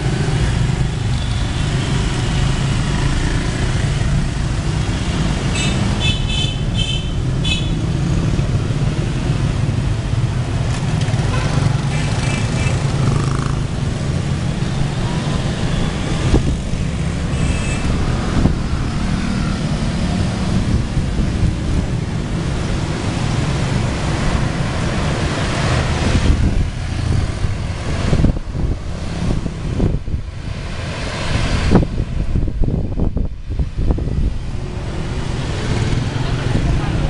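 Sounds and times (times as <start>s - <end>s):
motorbikes and cars passing: 0.0s - 37.0s
wind buffeting microphone: 12.7s - 17.3s, 25.6s - 37.0s.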